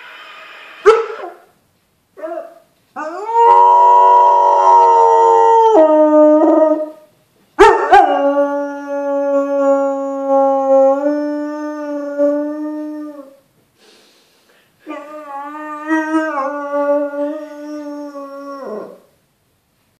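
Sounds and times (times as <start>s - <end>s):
dog howling: 2.2s - 7.0s, 14.9s - 19.0s.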